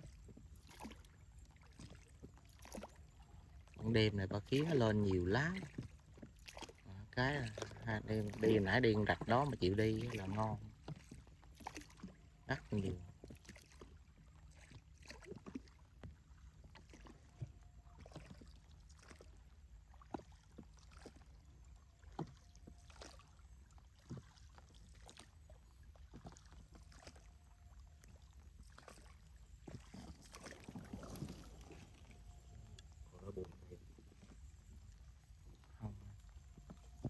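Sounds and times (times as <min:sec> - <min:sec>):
paddle splashing water: 0:00.0 - 0:37.0
paddle knocking on boat: 0:35.5 - 0:37.0.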